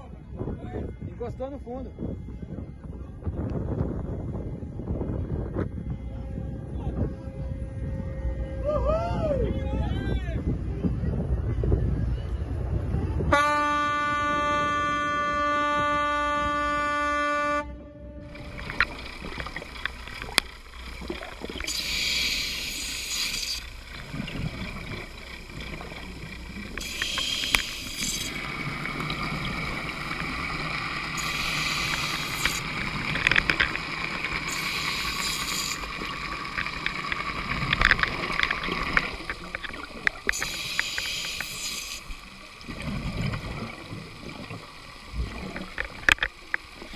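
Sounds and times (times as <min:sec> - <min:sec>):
boat horn blast: 0:05.6 - 0:08.8, 0:13.2 - 0:19.5
small clicks: 0:18.7 - 0:28.4, 0:31.2 - 0:42.2, 0:45.4 - 0:46.9
scuba regulator breathing bubbles: 0:21.5 - 0:25.1, 0:26.8 - 0:29.8, 0:31.2 - 0:33.1, 0:34.5 - 0:36.1, 0:40.3 - 0:42.1.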